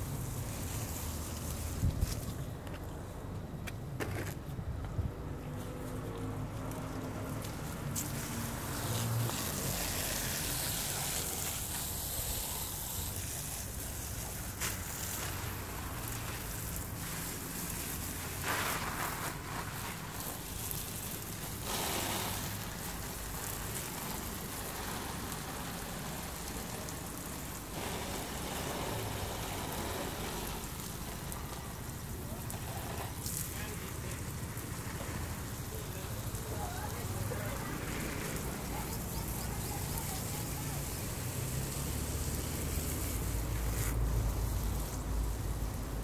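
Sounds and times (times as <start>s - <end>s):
water falling on leaves: 0.0s - 2.4s, 6.1s - 46.0s.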